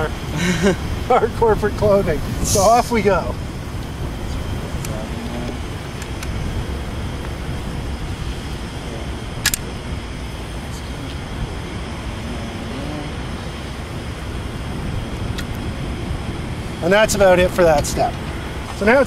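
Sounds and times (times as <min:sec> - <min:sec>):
low outdoor rumble: 0:00.0 - 0:19.0
caulking gun click: 0:09.4 - 0:09.6.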